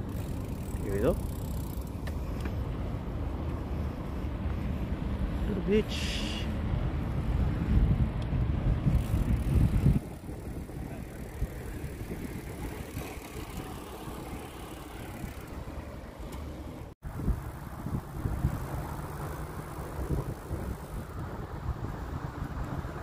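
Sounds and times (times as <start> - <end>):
bicycle tyre hum: 0.0 - 23.0
wind on microphone: 3.8 - 15.5, 17.0 - 23.0.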